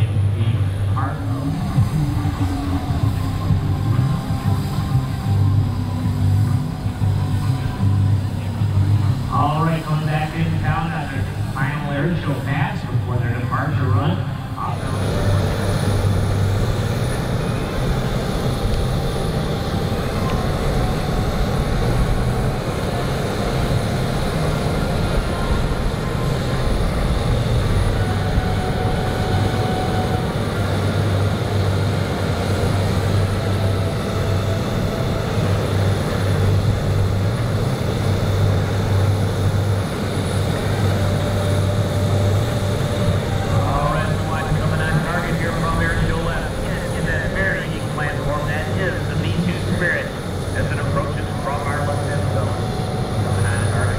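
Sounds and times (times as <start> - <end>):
low jet engine rumble: 0.0 - 53.9.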